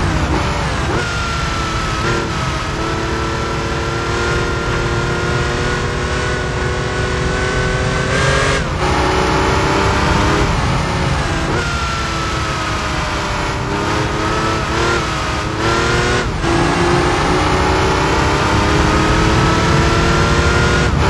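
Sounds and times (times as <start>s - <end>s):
car engine accelerating: 0.0s - 21.0s
wind and road noise: 0.0s - 21.0s.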